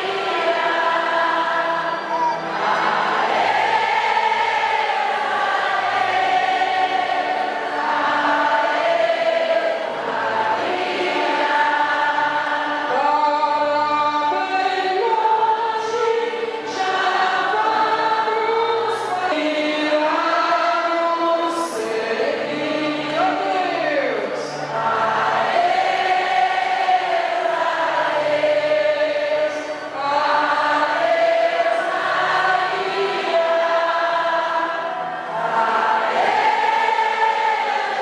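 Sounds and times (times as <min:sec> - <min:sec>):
crowd singing a hymn: 0:00.0 - 0:38.0.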